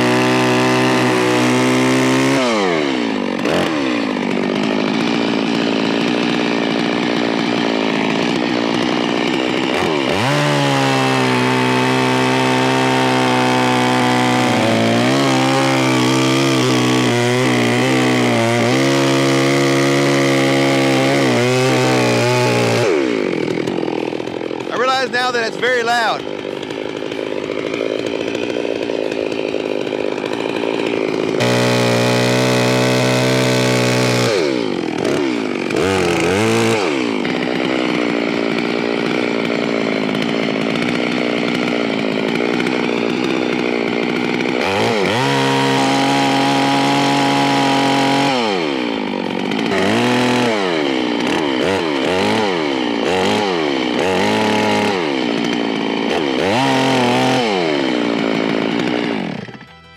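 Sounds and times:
chainsaw cutting logs: 0.0s - 59.9s.

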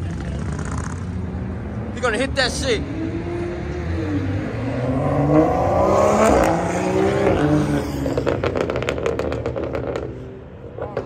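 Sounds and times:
car engine revving: 0.0s - 11.0s
rapid engine pops: 8.1s - 10.2s.

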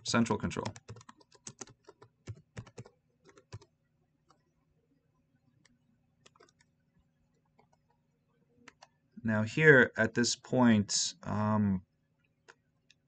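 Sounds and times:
keyboard typing: 0.0s - 4.5s, 5.6s - 8.0s, 8.6s - 9.0s.

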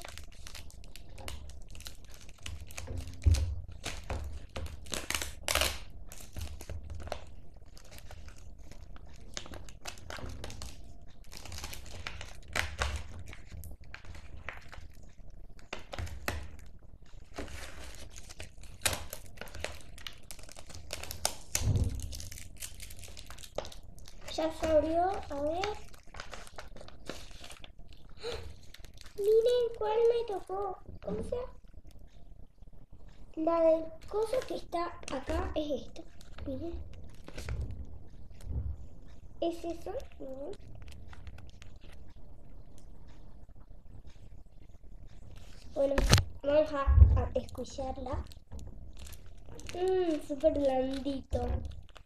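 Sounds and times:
bag crinkling and tearing: 0.0s - 30.5s, 48.2s - 52.0s.

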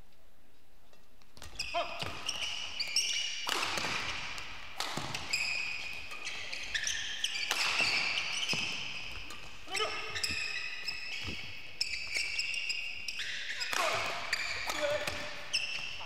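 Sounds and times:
shoes squeaking on court floor: 1.0s - 16.0s
shuttlecock hit with rackets: 3.4s - 4.2s.

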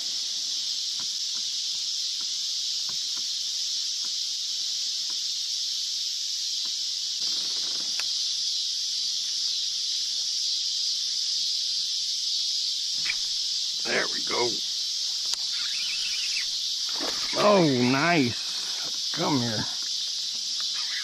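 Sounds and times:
insects chorus: 0.0s - 21.0s
faint ticks: 0.9s - 4.3s, 5.0s - 5.3s, 6.6s - 8.2s, 15.1s - 17.4s, 18.0s - 21.0s.

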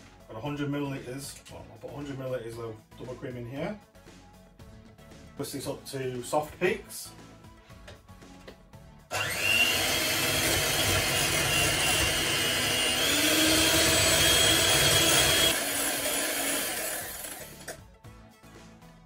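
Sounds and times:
electric mixer whining: 9.1s - 17.8s.

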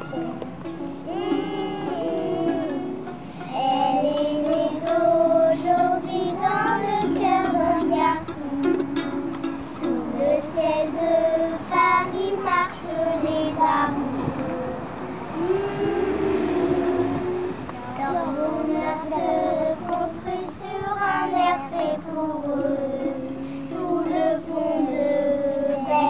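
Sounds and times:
high voice singing: 1.0s - 11.7s, 13.2s - 20.3s
sustained low notes: 14.0s - 18.7s.

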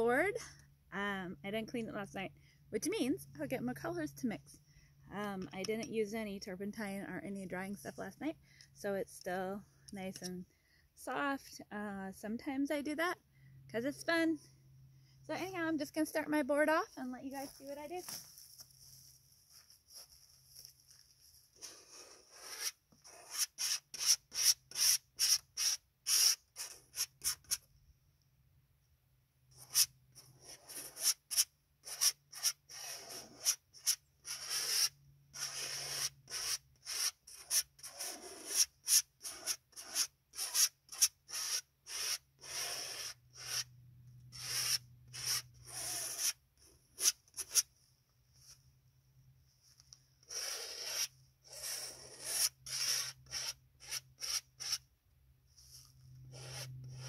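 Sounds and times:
palette knife scraping paint on canvas: 21.6s - 27.6s, 29.6s - 43.7s, 44.3s - 47.7s, 49.8s - 54.9s, 55.6s - 57.0s.

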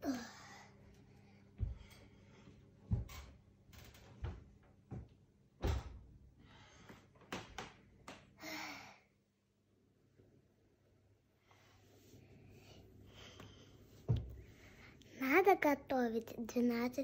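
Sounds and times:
faint hum: 8.3s - 17.0s.

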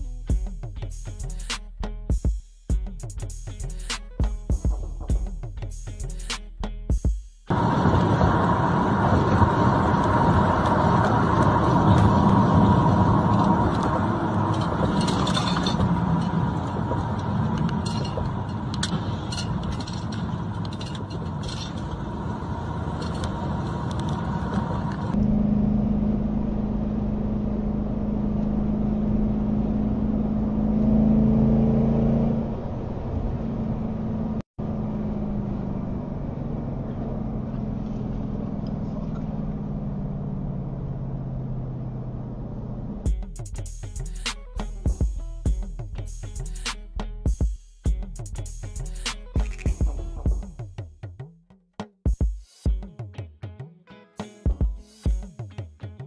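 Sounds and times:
wind noise: 7.5s - 30.7s
vehicle engine: 7.5s - 47.3s
road noise: 7.5s - 47.4s, 48.0s - 50.8s.

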